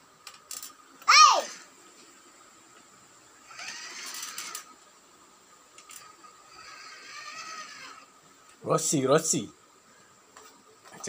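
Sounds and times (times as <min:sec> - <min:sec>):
small electric motor whirring: 0:03.4 - 0:04.8, 0:05.8 - 0:08.1.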